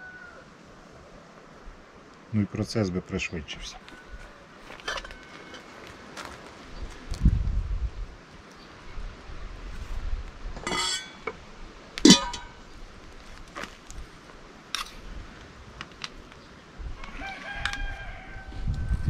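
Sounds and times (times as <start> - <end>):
rooster crowing: 0.0 - 0.5, 3.8 - 5.7, 17.0 - 19.0
sharp clinks and knocks: 10.6 - 11.4, 12.0 - 12.6.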